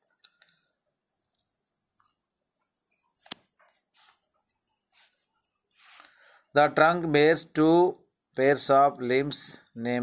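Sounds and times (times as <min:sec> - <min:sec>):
cricket chirping: 0:00.0 - 0:10.0
sharp click: 0:03.2 - 0:03.5.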